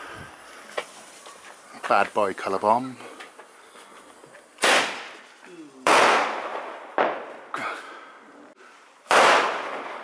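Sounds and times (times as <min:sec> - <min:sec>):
firework bangs echoing: 0:04.6 - 0:07.6, 0:09.0 - 0:10.0.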